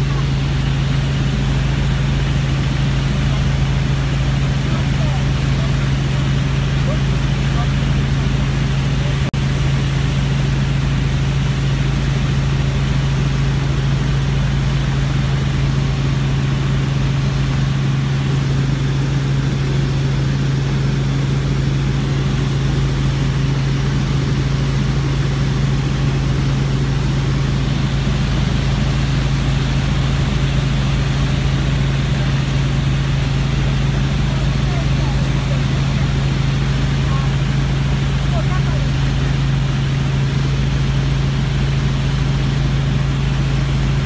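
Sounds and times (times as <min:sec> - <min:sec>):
helicopter rotor and engine drone: 0:00.0 - 0:44.0.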